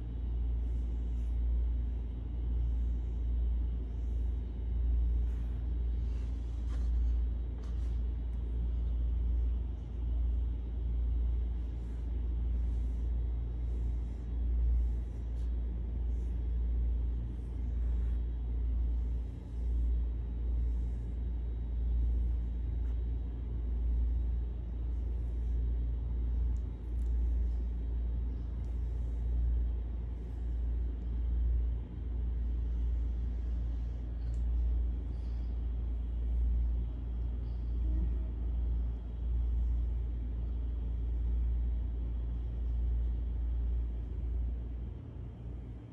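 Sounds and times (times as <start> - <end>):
hand brushing fur: 0.4 - 10.1, 11.3 - 31.7.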